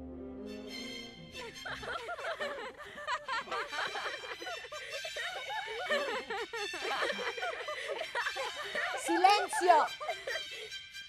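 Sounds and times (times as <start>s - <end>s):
orchestral music: 0.0s - 2.6s
children laughing and giggling: 1.4s - 10.9s.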